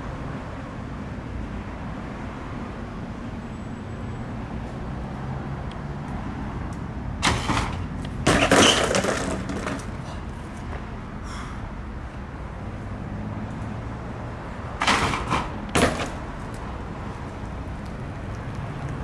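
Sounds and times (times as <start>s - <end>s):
bike impact on asphalt: 7.2s - 10.0s, 14.8s - 16.3s
bike crashing and clattering: 7.2s - 10.1s, 14.8s - 16.2s.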